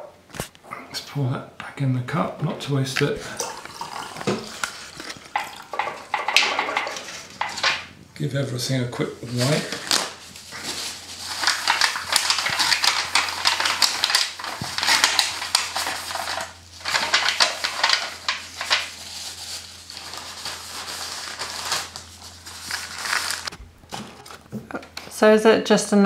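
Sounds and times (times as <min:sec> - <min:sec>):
paper crinkling against foil: 0:03.4 - 0:07.9, 0:09.2 - 0:24.6.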